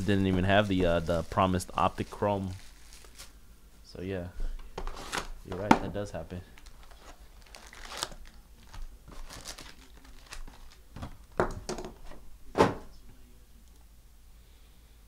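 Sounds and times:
foil packs crinkling and rustling: 0:00.0 - 0:03.4, 0:06.4 - 0:11.5.

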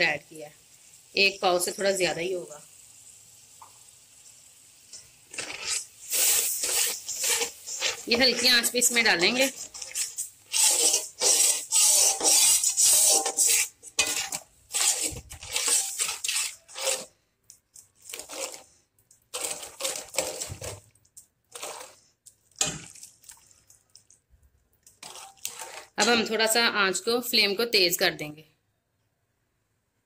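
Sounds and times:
spoon stirring and scraping pot: 0:04.9 - 0:24.2, 0:24.8 - 0:26.6.

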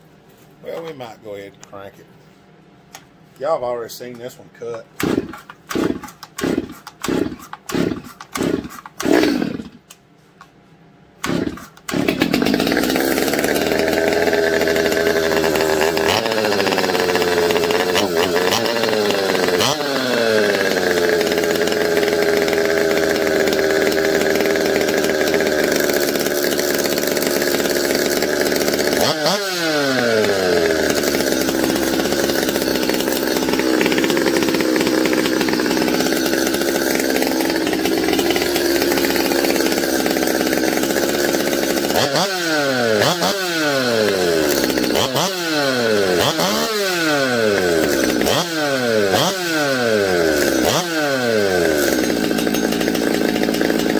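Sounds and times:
chainsaw engine revving: 0:04.9 - 0:09.9, 0:11.2 - 0:53.9.

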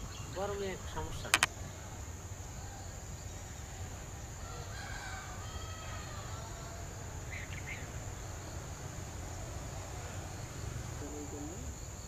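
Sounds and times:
insect drone: 0:00.0 - 0:12.0
distant rooster crowing: 0:04.3 - 0:07.2.

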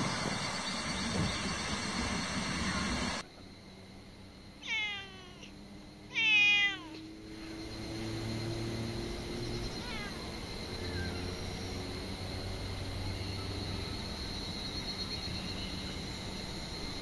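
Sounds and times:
steady rushing noise: 0:00.0 - 0:04.2
cat meowing: 0:04.6 - 0:05.5, 0:06.1 - 0:07.0, 0:09.7 - 0:10.3.

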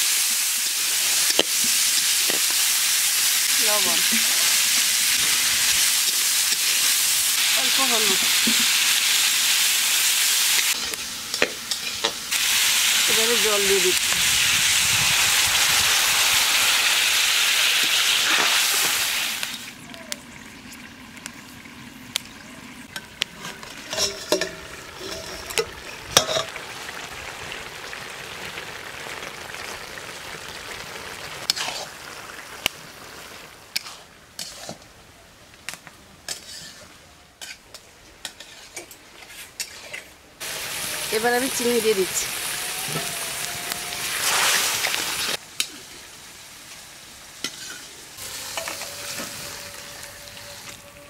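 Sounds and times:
water sizzling in hot oil: 0:00.0 - 0:34.8, 0:38.2 - 0:51.0.

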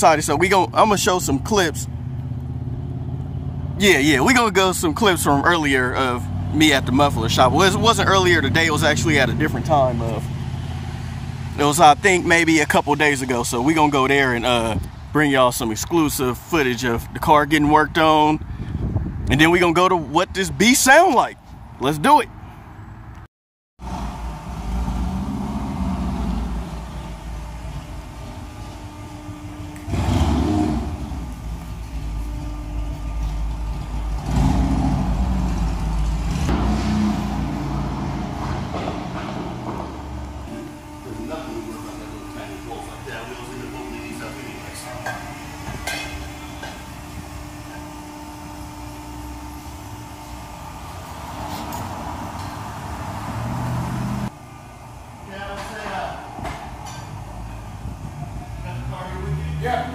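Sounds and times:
low mechanical rumble with hum: 0:23.8 - 0:52.6, 0:54.2 - 0:59.2
car engine running and revving: 0:23.8 - 0:54.3.

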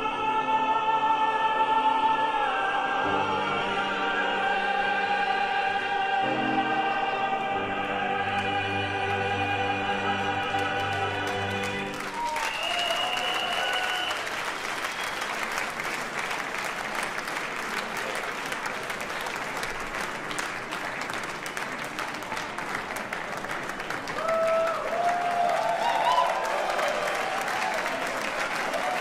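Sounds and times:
male voices and piano chord: 0:00.0 - 0:12.2
audience applause: 0:10.1 - 0:29.0.

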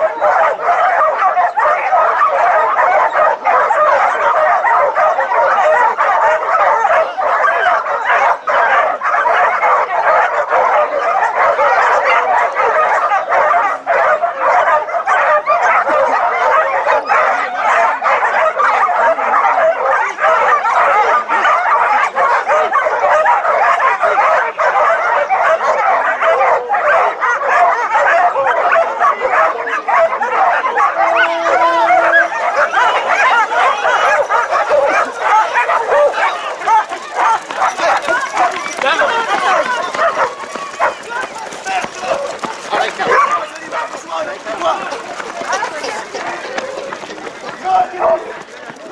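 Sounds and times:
dogs barking and yelping: 0:00.0 - 0:48.9.

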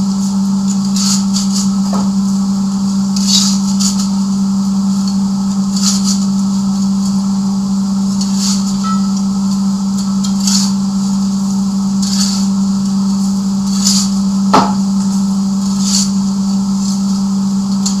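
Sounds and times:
poker scraping coal: 0:00.7 - 0:04.4, 0:05.2 - 0:07.3, 0:08.0 - 0:18.0
metal clank: 0:08.8 - 0:09.2.

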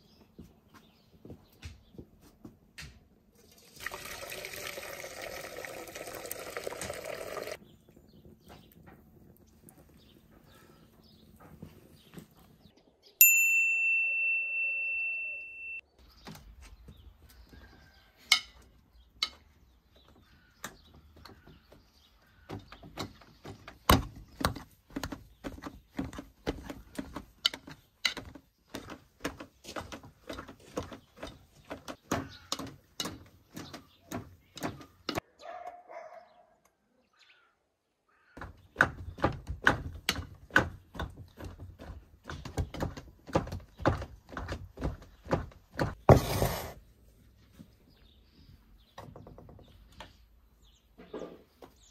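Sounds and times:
bright ringing tone: 0:13.2 - 0:15.8
potato masher knocking in metal pot: 0:22.5 - 0:35.2.

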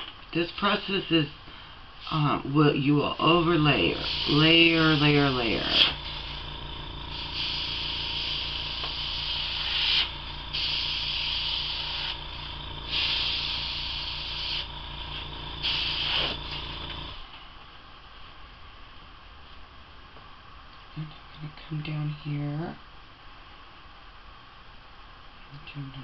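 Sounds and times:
compressor humming: 0:00.0 - 0:18.7
airbrush spraying hiss: 0:03.4 - 0:17.1.

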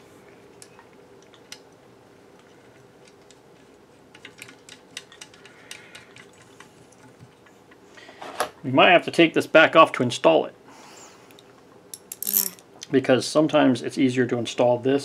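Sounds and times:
small metal parts clicking: 0:11.9 - 0:12.6.

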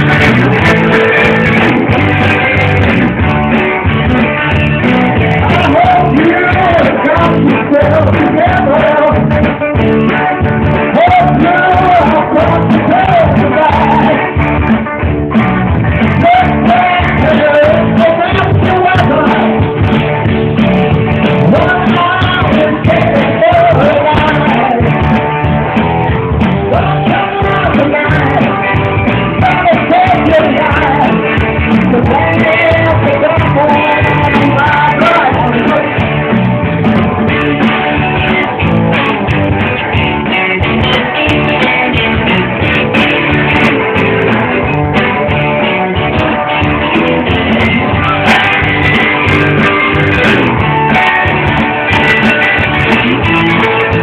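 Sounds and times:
person singing: 0:00.0 - 0:14.4, 0:15.9 - 0:19.9, 0:21.3 - 0:25.2, 0:26.5 - 0:38.6
live band playing loudly: 0:00.0 - 0:54.0.

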